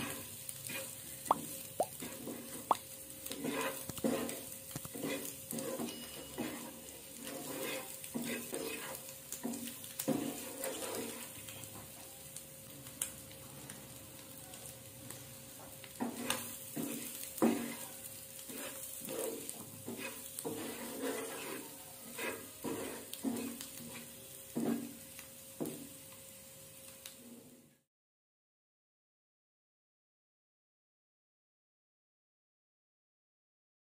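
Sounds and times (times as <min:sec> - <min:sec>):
wooden spatula scraping a pan: 0:00.0 - 0:01.3, 0:02.0 - 0:12.0, 0:15.6 - 0:26.0
light sizzle of frying: 0:00.0 - 0:27.9.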